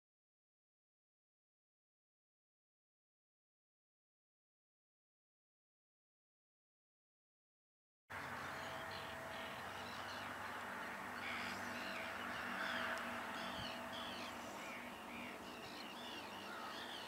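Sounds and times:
birds calling: 0:08.1 - 0:17.0
steady background hiss: 0:08.2 - 0:17.0.

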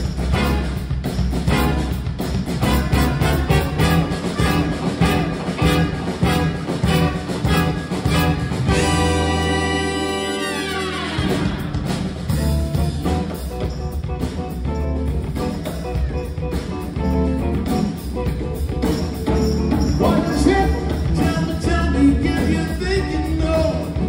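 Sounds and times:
band playing groove: 0:00.0 - 0:24.0
horn section chord: 0:02.6 - 0:13.0.

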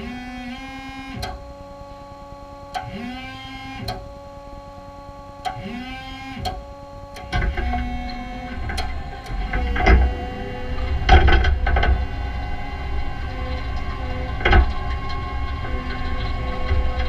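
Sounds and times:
electric forklift motor whine: 0:00.0 - 0:17.0
rising squeal: 0:07.5 - 0:17.0.

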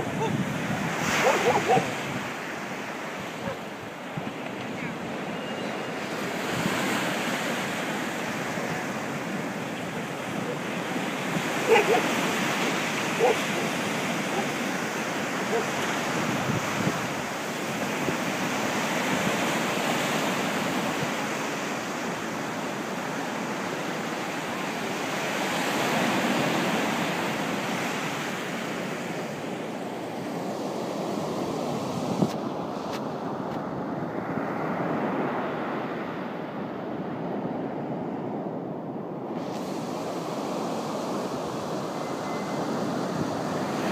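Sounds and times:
waves breaking on shore: 0:00.0 - 0:43.9.

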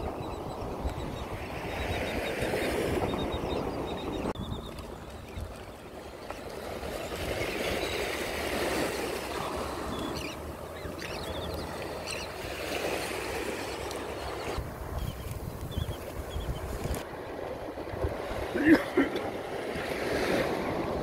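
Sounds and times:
faint seabird calls: 0:00.0 - 0:16.7
ocean surf on shore: 0:00.0 - 0:21.0
wind on microphone: 0:14.5 - 0:18.5.

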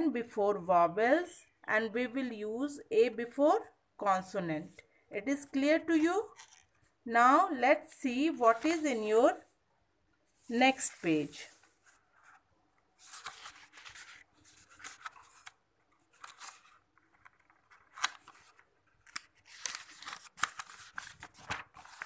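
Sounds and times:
paper rustling and crinkling: 0:10.3 - 0:22.0.

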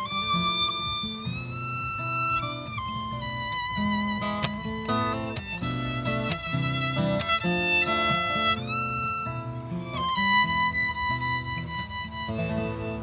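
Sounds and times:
strummed acoustic guitar: 0:00.0 - 0:13.0
violin: 0:00.0 - 0:13.0.

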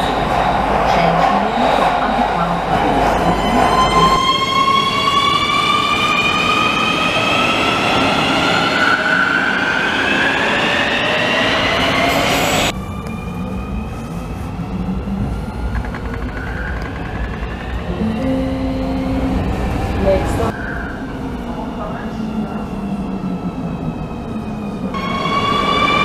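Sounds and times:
wheels rumbling on rail: 0:12.7 - 0:26.0.

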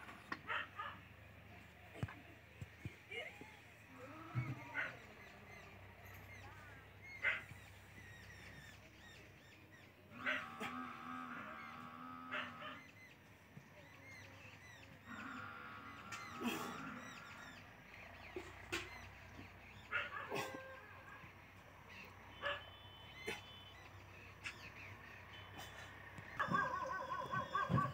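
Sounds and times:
small birds chirping: 0:00.2 - 0:10.4, 0:11.5 - 0:27.9
bird honking calls: 0:21.9 - 0:27.9.

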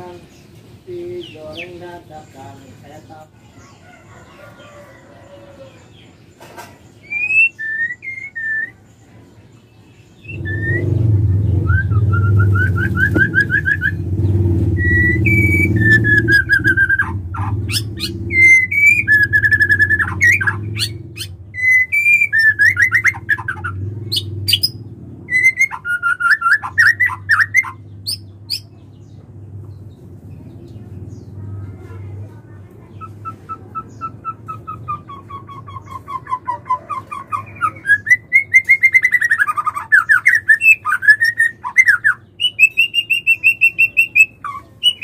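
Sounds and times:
bird whistling and trilling: 0:07.0 - 0:08.9, 0:10.2 - 0:14.0, 0:14.7 - 0:28.6, 0:33.0 - 0:45.0.

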